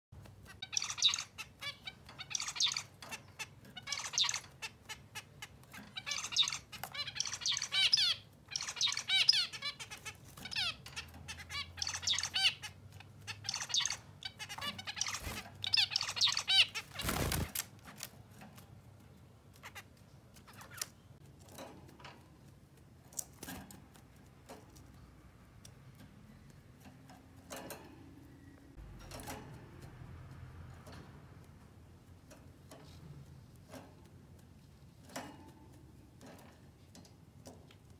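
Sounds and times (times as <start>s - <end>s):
short bird calls and clicks: 0.4s - 17.4s.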